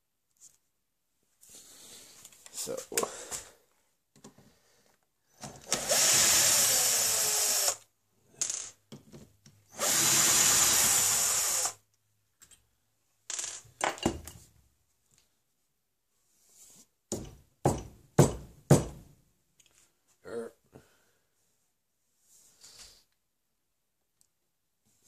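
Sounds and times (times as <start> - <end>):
power drill drilling into wood: 5.6 - 7.8, 9.7 - 11.8.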